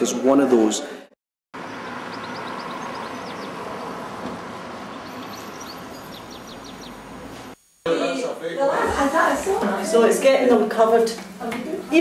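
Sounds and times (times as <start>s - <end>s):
traffic hum: 1.6s - 7.6s
small bird twittering: 1.7s - 4.0s, 4.9s - 7.1s.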